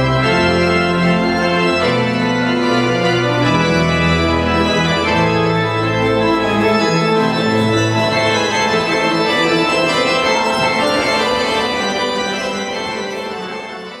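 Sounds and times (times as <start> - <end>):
pipe organ chords: 0.0 - 14.0.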